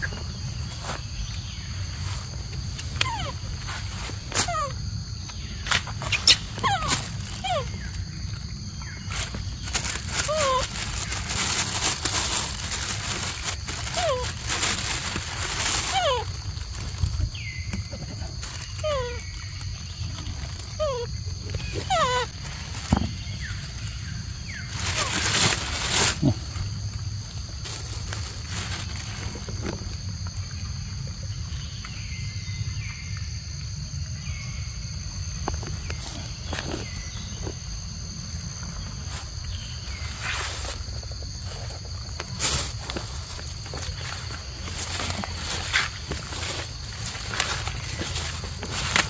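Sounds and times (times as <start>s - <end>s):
rustles and scuffs: 0.0s - 4.7s, 38.6s - 49.0s
insects droning: 0.0s - 49.0s
macaques high calls: 6.0s - 8.0s, 10.2s - 10.8s, 20.7s - 22.4s.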